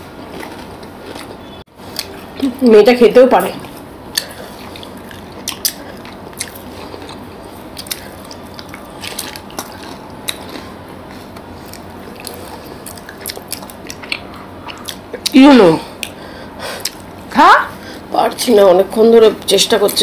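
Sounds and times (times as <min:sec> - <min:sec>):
chewing soft sweets: 0:00.2 - 0:02.2, 0:03.6 - 0:17.2.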